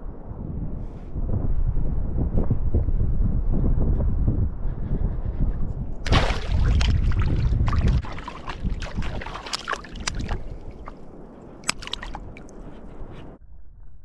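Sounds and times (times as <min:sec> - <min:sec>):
water splashing around wading feet: 0:06.0 - 0:12.8.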